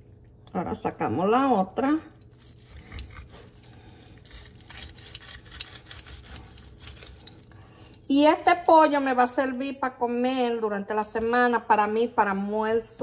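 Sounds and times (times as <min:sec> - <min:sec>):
low room hum: 0:00.0 - 0:13.0
knife cutting meat on wooden board: 0:02.4 - 0:07.3.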